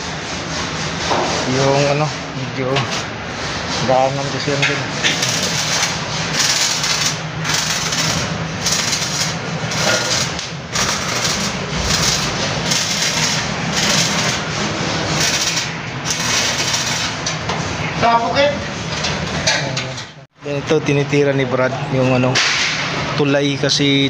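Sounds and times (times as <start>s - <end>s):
arc welding crackle and hiss: 5.0s - 17.4s.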